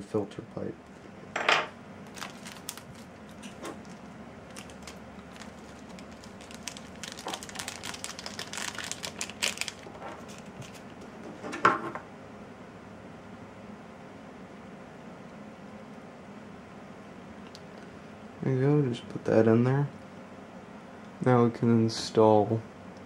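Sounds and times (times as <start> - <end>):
plastic bag crinkling: 2.0 - 11.0.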